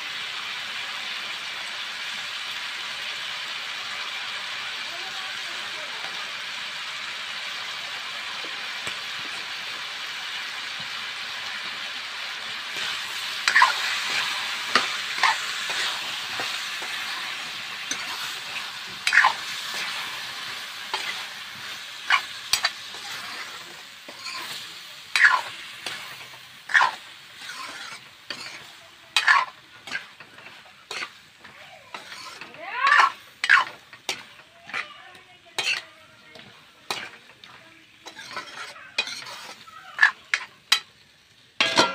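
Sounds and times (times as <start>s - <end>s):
food sizzling in a wok: 0.0s - 41.9s
metal ladle scraping a pan: 12.7s - 34.9s, 35.5s - 40.9s, 41.6s - 41.9s.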